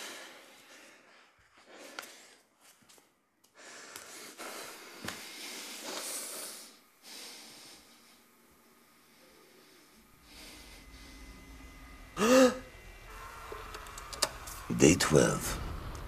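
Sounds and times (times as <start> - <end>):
man breathing heavily: 0.0 - 2.8, 3.4 - 12.8.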